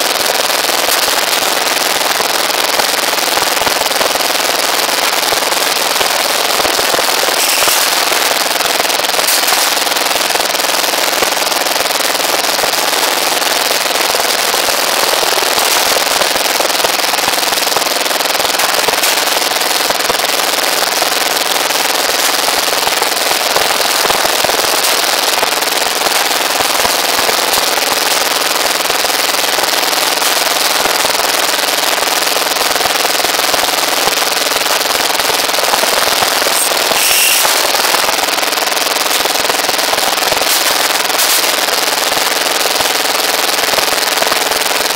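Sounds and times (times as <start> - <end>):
rebar bending machine chattering: 6.1 - 11.4, 14.6 - 43.4.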